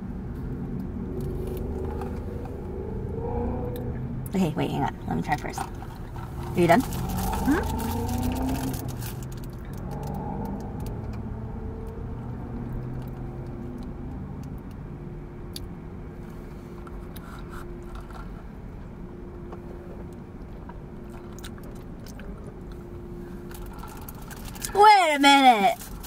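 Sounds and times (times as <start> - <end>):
car cabin hum: 0.0 - 9.4
chewing with wet clicks: 6.9 - 11.2, 12.6 - 15.7, 20.1 - 22.9.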